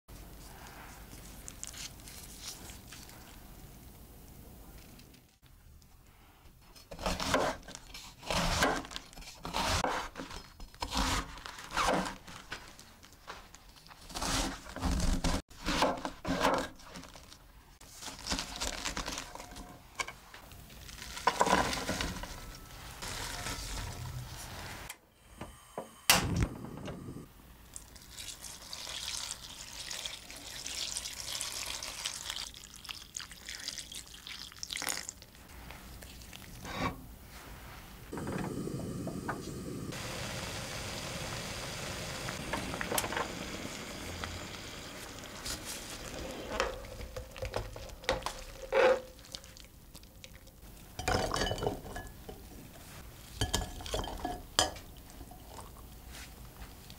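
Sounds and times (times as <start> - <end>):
knife cutting cabbage on board: 6.9 - 12.2
water pouring into pot: 27.7 - 35.2.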